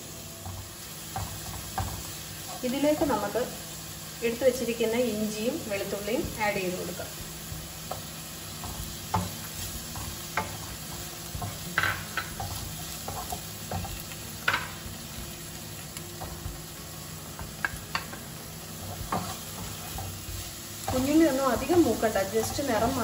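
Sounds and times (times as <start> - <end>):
food sizzling in oil: 0.0 - 23.0
spatula knocking on pan: 7.1 - 15.0, 17.4 - 23.0.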